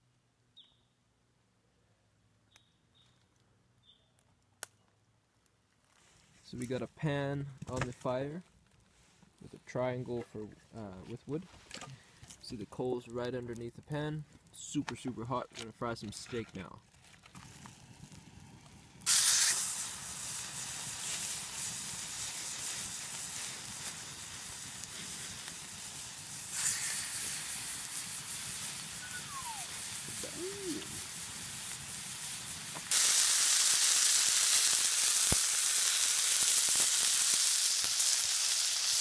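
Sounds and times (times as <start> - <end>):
steaks sizzling in frying pan: 19.1 - 39.0.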